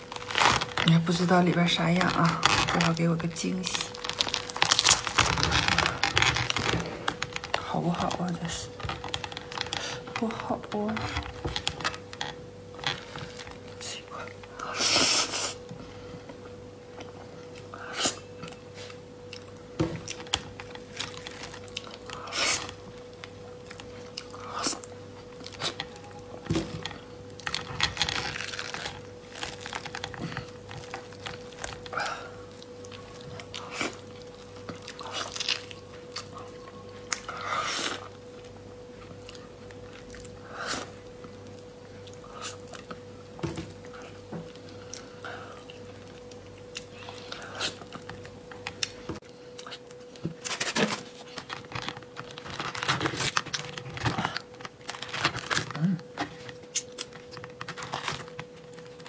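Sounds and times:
faint steady hum: 0.0 - 59.0
squishing and chewing: 0.0 - 59.0.

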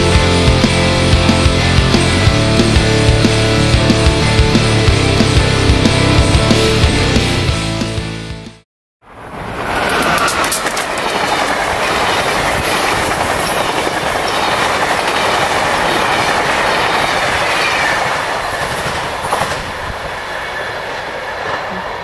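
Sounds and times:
train wheels clattering on rails: 9.6 - 22.0.

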